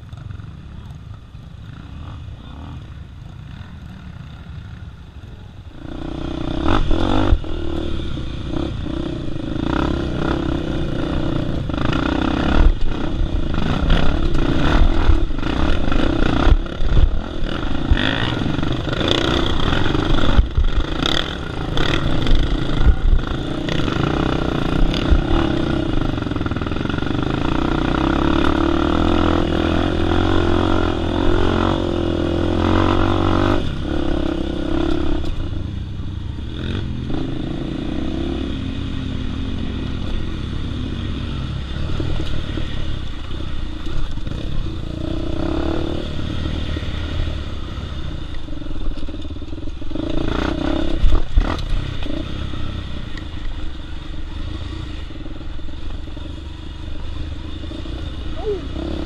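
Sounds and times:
dirt bike engine revving: 0:05.8 - 0:35.5, 0:39.4 - 0:48.2.

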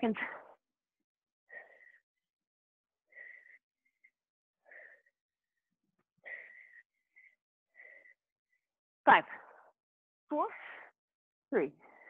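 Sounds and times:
woman breathing hard: 0:01.5 - 0:02.4, 0:03.0 - 0:09.8.

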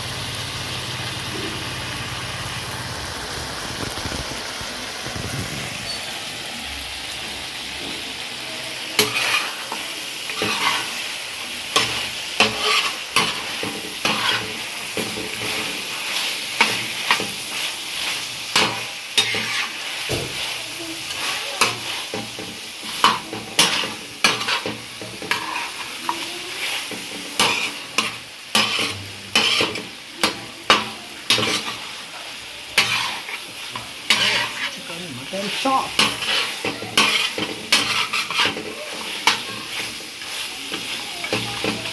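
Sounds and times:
meat sizzling in oil: 0:00.0 - 0:41.9
metal spoon scraping pan: 0:09.0 - 0:11.0, 0:11.7 - 0:32.1, 0:32.8 - 0:41.9.

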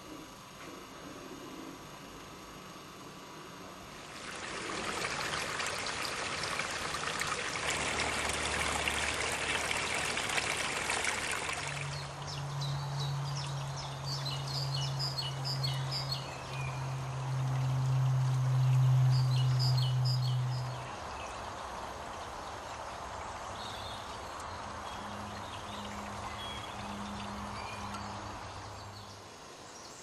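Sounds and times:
steady low hum: 0:00.0 - 0:30.0
stream trickling over stones: 0:04.1 - 0:12.4, 0:15.6 - 0:28.9
songbird chirps: 0:18.4 - 0:30.0.

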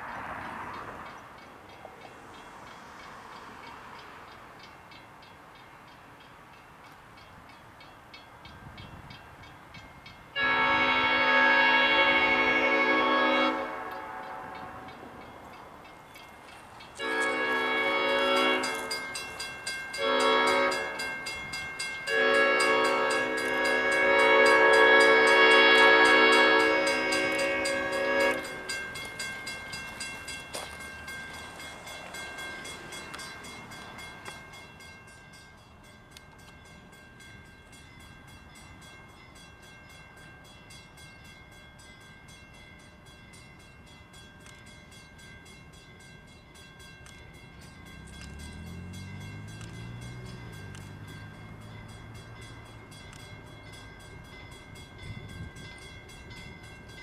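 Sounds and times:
faint crossing bell ringing: 0:00.4 - 0:10.4, 0:14.1 - 0:57.0
locomotive horn blowing: 0:10.3 - 0:15.1, 0:17.0 - 0:19.2, 0:20.0 - 0:21.2, 0:22.0 - 0:28.9
diesel engine throttling up: 0:47.8 - 0:53.7.

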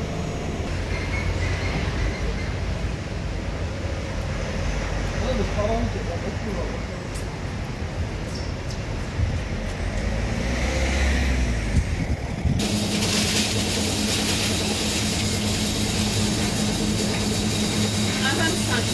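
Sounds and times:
car passing: 0:09.5 - 0:14.7.

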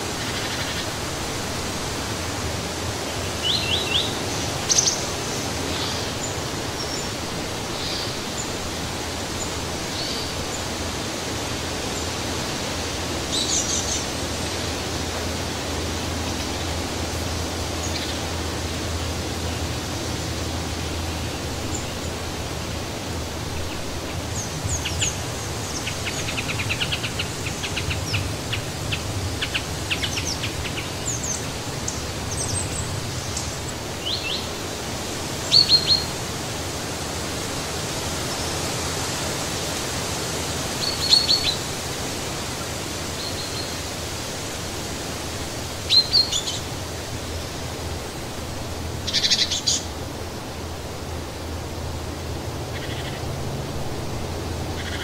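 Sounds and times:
wind rushing through foliage: 0:00.0 - 0:55.0
small birds chirping: 0:03.3 - 0:08.6, 0:49.0 - 0:49.9.

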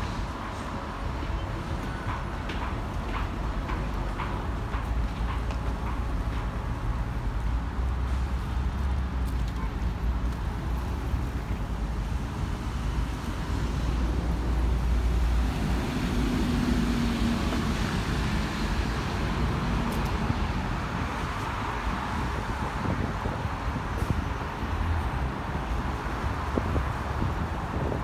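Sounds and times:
tyres hissing on wet road: 0:10.7 - 0:27.8.

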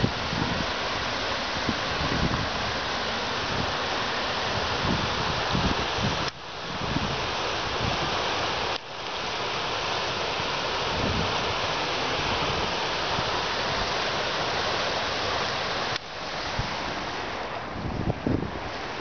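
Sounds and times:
wind buffeting microphone: 0:00.0 - 0:08.2, 0:10.9 - 0:14.0, 0:16.4 - 0:19.0
turbulent water rushing: 0:00.0 - 0:19.0.

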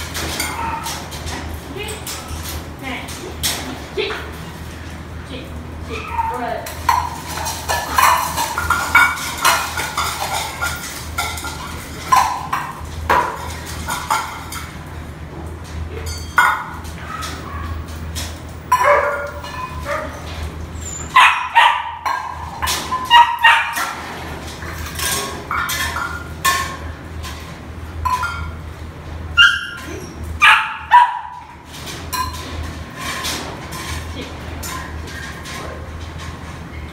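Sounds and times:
dogs barking and yipping: 0:00.0 - 0:01.3, 0:05.9 - 0:14.5, 0:16.0 - 0:26.3, 0:29.3 - 0:31.6.

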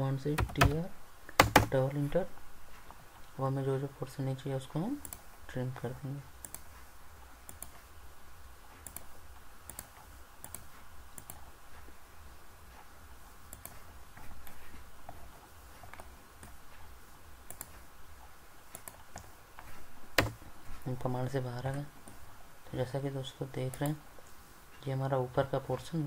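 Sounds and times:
computer mouse clicks: 0:05.0 - 0:05.3, 0:06.4 - 0:06.7, 0:07.4 - 0:07.8, 0:08.8 - 0:11.5, 0:13.5 - 0:15.2, 0:17.5 - 0:17.8, 0:18.7 - 0:20.4.

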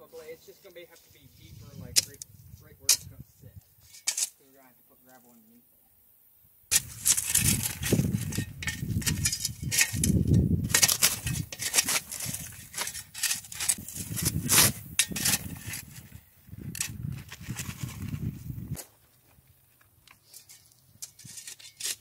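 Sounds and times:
shovels scraping rocky soil: 0:01.0 - 0:04.4, 0:06.7 - 0:18.9, 0:20.1 - 0:22.0
stones clinking against blades: 0:06.7 - 0:15.9.

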